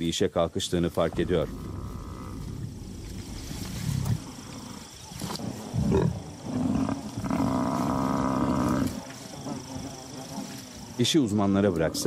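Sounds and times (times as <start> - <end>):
lion growls: 1.0 - 12.0.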